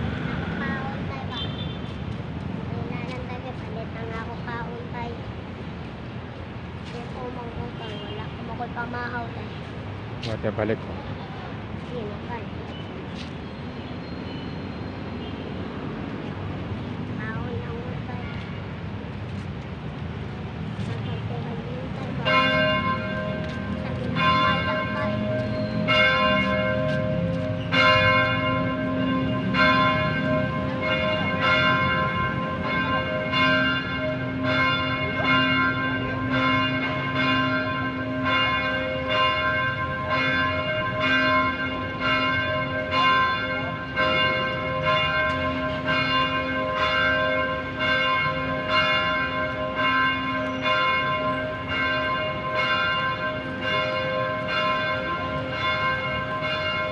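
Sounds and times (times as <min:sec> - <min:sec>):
church bell ringing: 0:20.8 - 0:56.9.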